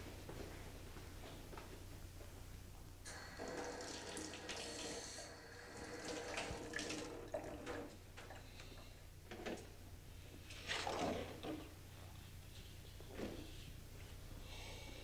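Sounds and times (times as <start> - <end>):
water running in sink: 3.1 - 8.0.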